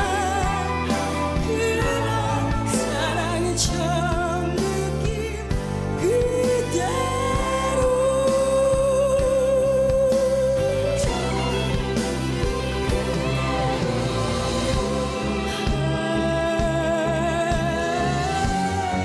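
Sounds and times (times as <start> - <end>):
woman singing a ballad: 0.0 - 13.7, 14.6 - 19.0
band with drums keyboards and flutes: 0.0 - 19.0.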